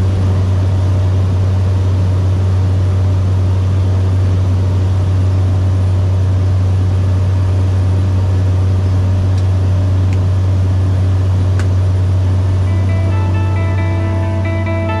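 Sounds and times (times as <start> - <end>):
propeller plane droning: 0.0 - 15.0
guitar music: 12.7 - 15.0.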